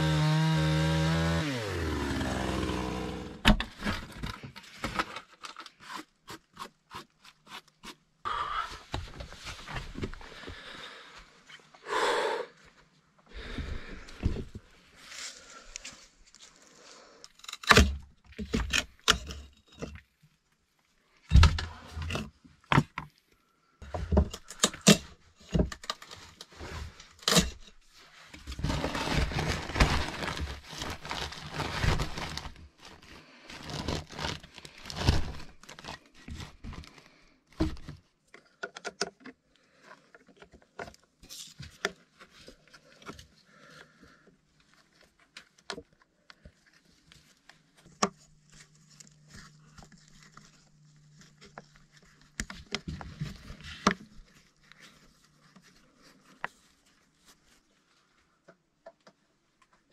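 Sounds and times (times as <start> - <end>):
continuous scraping: 25.4 - 37.3.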